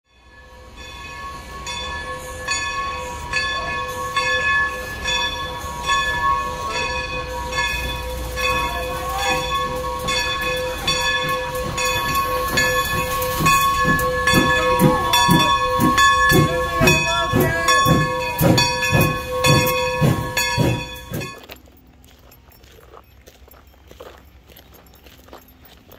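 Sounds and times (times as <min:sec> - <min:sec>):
steam locomotive hiss: 0:00.2 - 0:21.4
low exhaust chuffs: 0:07.2 - 0:21.6.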